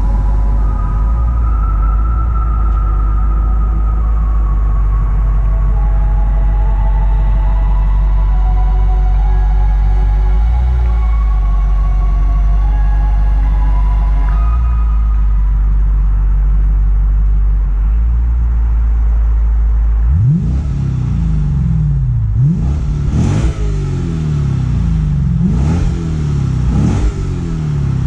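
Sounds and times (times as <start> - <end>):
car engine idling: 0.0 - 28.0
car engine revving: 0.0 - 28.0.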